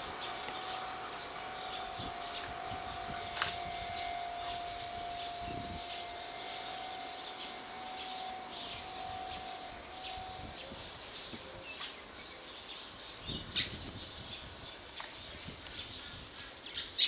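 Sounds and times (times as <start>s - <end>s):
faint steady tone: 0.0s - 11.6s
small birds chirping: 0.0s - 17.0s.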